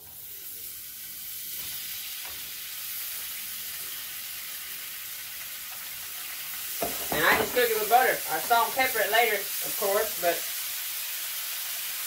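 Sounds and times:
butter sizzling in a frying pan: 0.0 - 12.0.

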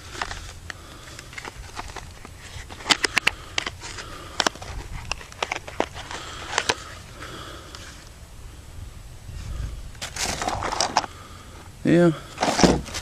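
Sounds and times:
handling clicks and rattles: 0.0 - 7.0.

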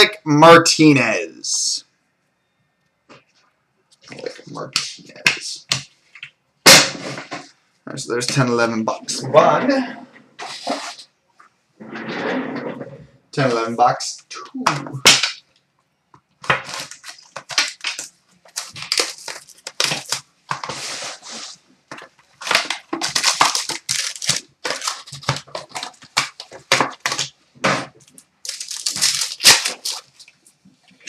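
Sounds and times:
foil packs crackling: 16.4 - 30.6
plastic wrapper tearing and crinkling: 16.4 - 30.6.

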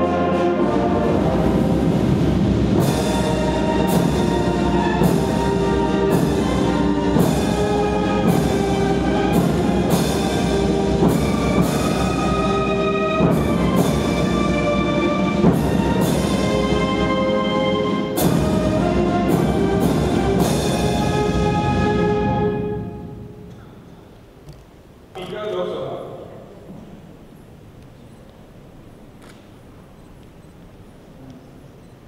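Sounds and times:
brass chords: 0.0 - 23.6
drum and cymbal strikes: 1.4 - 23.6.

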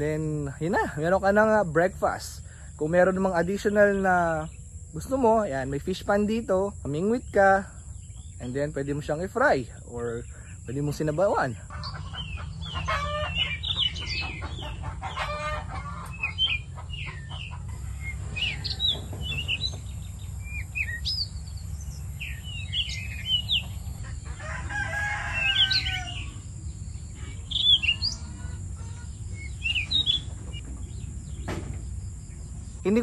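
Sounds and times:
chickens calling: 0.0 - 33.0
small birds chirping: 0.0 - 33.0
low rumble: 15.9 - 24.3.

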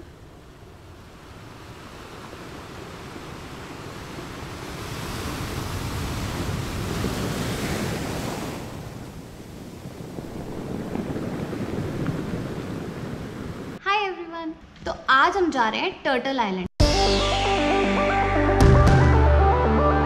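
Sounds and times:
ocean surf breaking on beach: 0.0 - 13.8.

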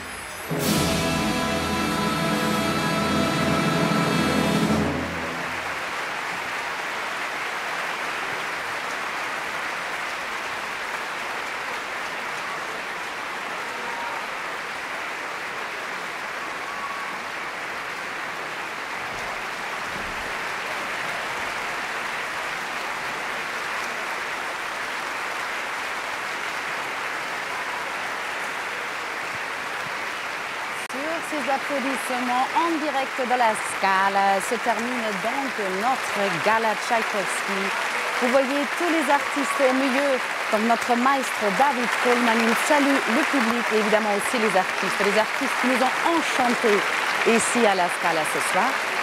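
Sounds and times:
orchestral music: 0.0 - 6.0
audience applause: 0.0 - 49.0.

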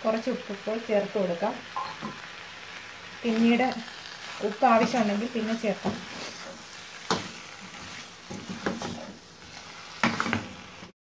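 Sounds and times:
chicken sizzling in a pan: 0.0 - 10.9
wooden spatula scraping a pan: 4.2 - 10.9.

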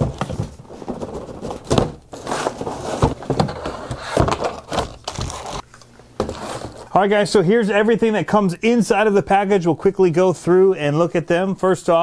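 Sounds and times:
cardboard scraping and rustling: 0.0 - 5.6, 6.2 - 7.0.

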